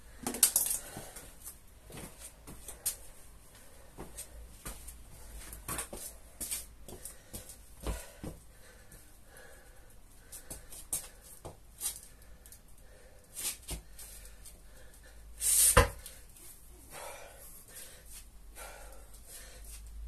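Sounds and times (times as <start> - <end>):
man breathing hard: 0.0 - 1.5, 6.3 - 11.4, 12.0 - 20.0.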